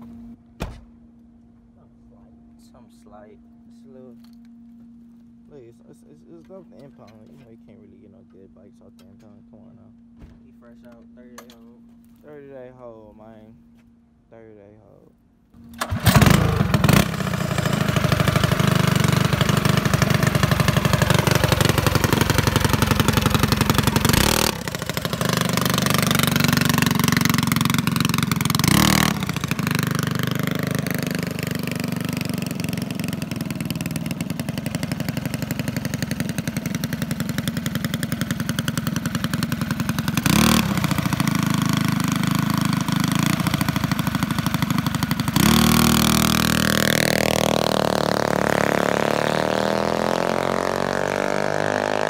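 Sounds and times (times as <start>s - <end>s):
mini bike engine revving: 15.8s - 52.0s.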